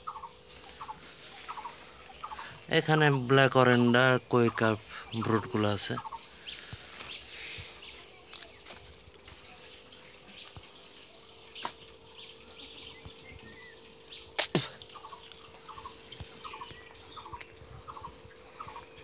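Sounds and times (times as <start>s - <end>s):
steady hum: 0.0s - 19.0s
water dripping and splashing: 4.3s - 19.0s.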